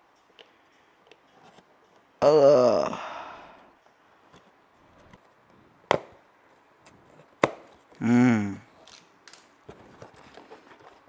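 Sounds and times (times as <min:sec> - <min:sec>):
person humming: 0:02.2 - 0:03.5, 0:08.0 - 0:08.7.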